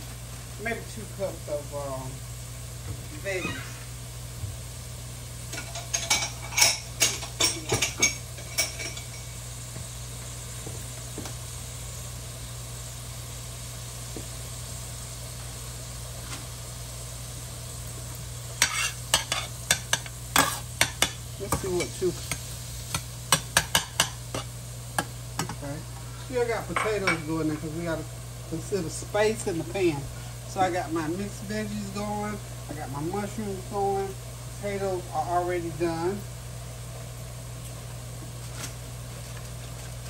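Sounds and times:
mushrooms sizzling in oil: 0.0 - 40.0
metal spoon scraping pan: 18.6 - 19.8.

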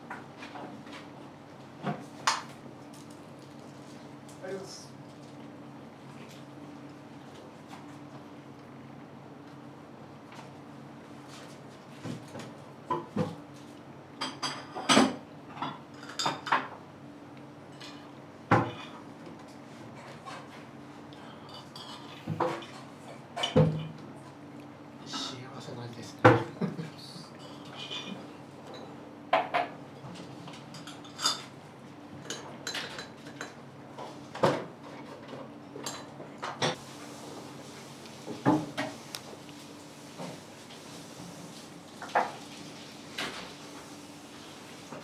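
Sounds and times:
dishes and utensils clinking: 14.2 - 16.7, 27.4 - 31.5, 32.2 - 33.6.

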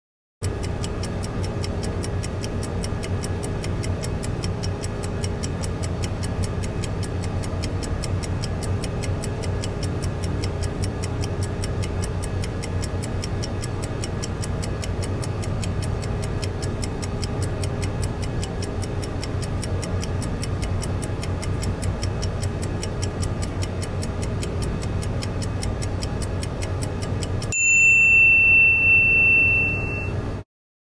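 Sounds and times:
kitchen timer ticking: 0.4 - 30.2
timer ringing: 27.4 - 30.4.

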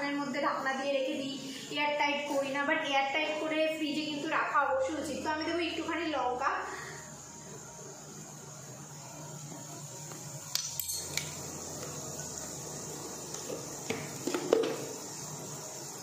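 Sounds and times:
onions sizzling in oil: 8.4 - 16.0
spoon clinking on containers: 10.6 - 11.4.

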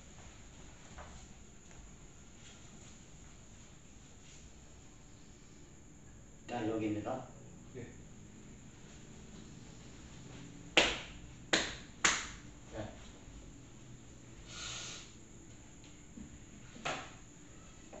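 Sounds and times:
hand smacks with echo: 10.8 - 12.4
short hiss: 14.4 - 15.2.

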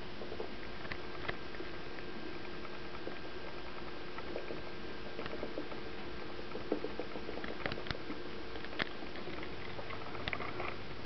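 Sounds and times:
steady hum: 0.0 - 11.0.

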